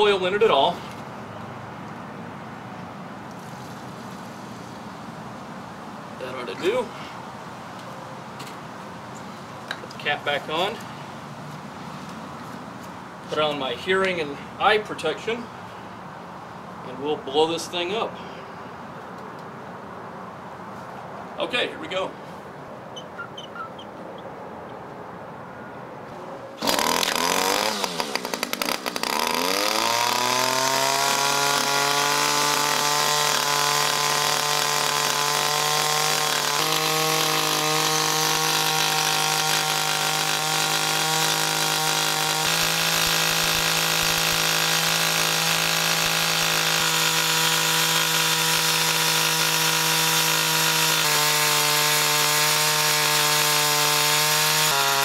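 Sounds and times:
string trimmer engine running: 0:26.6 - 0:55.0.

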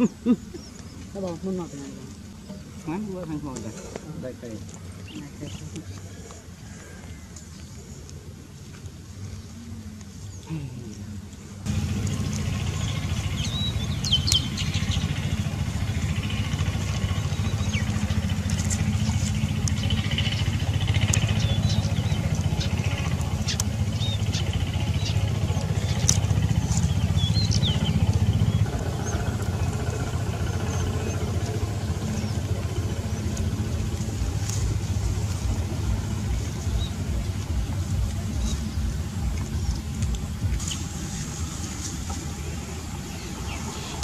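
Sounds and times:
small birds chirping: 0:00.0 - 0:44.0
steady low rumble: 0:00.0 - 0:44.0.

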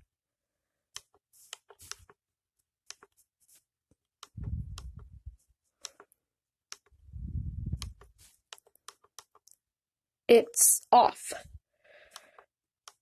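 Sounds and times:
low muffled rumble: 0:04.4 - 0:05.4, 0:07.1 - 0:08.0.

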